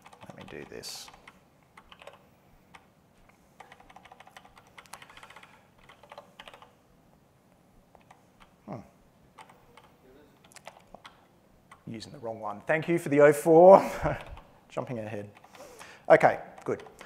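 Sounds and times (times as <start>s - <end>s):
typing on a computer keyboard: 0.0s - 2.9s, 3.6s - 6.8s, 7.9s - 8.6s, 9.4s - 11.9s, 14.0s - 14.5s, 15.2s - 15.7s, 16.6s - 17.0s.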